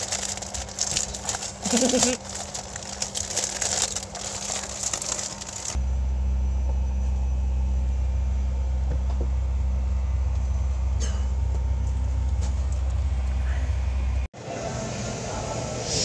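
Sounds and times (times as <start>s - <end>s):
aircraft cabin drone: 5.4s - 16.0s.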